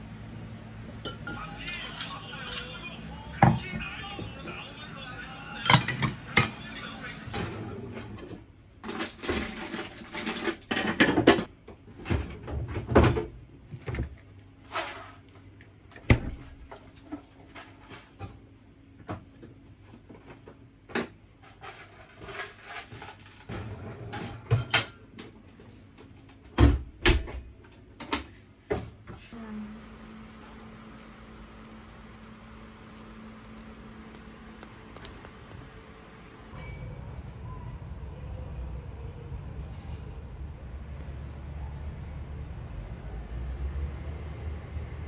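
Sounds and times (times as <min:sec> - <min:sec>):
dishes and cutlery clattering: 0:01.0 - 0:02.9
steady low hum: 0:28.5 - 0:43.1.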